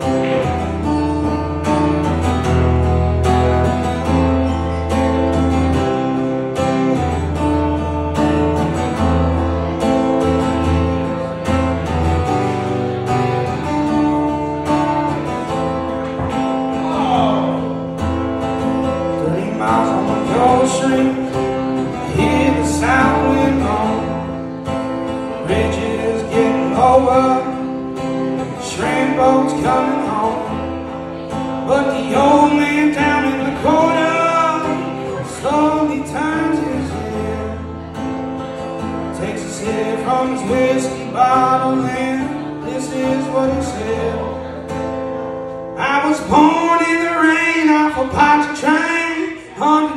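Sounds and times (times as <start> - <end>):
acoustic guitar: 0.0 - 49.9
man singing: 16.3 - 44.9, 45.7 - 49.9.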